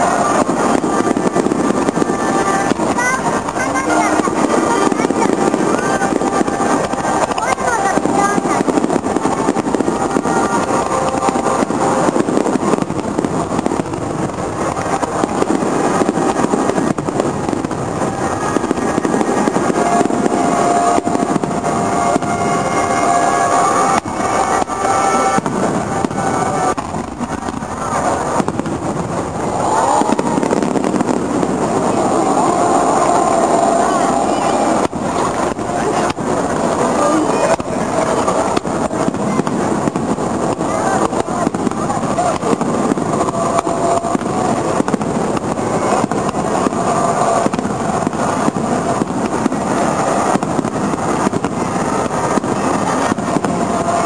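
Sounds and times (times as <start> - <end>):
continuous din: 0.0 - 54.0
firework shells booming: 0.0 - 54.0.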